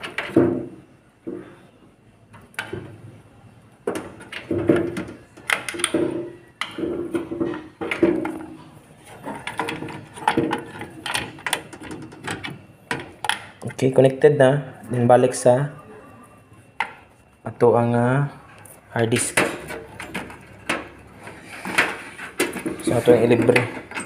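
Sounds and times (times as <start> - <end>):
plastic and metal clicks and scraping: 3.9 - 13.7, 18.6 - 24.0.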